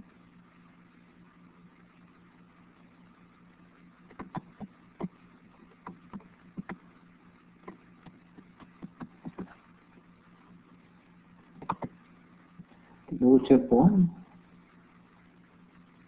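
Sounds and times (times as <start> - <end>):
low electrical hum: 0.0 - 16.0
computer mouse clicking: 4.1 - 5.1, 5.8 - 6.8, 7.6 - 9.6.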